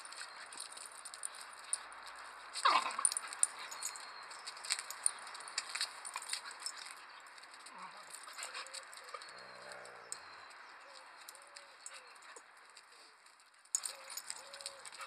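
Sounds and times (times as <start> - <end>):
dogs scuffling with light clicks: 0.0 - 15.0.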